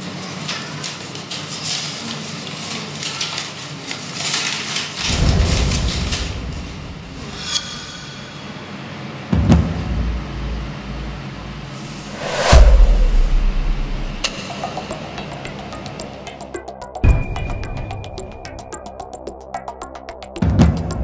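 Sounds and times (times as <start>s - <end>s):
paper rustling and crackling: 0.1s - 6.5s
sharp hit: 6.8s - 8.9s, 11.9s - 16.2s
low rumble: 11.9s - 14.4s
deep low boom: 12.2s - 14.3s.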